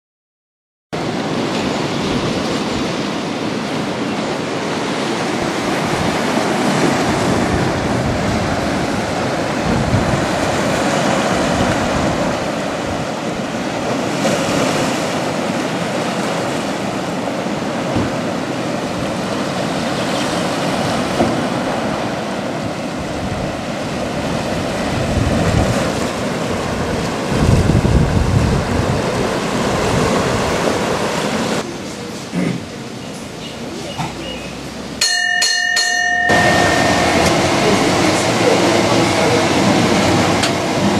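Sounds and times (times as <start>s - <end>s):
wind buffeting microphone: 1.0s - 31.6s
sea surf breaking on rocks: 1.0s - 32.9s, 34.2s - 40.9s.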